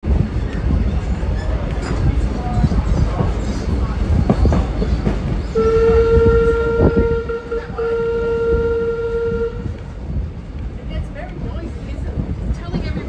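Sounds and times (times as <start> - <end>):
train rumbling: 0.0 - 13.0
locomotive horn blast: 5.5 - 9.8.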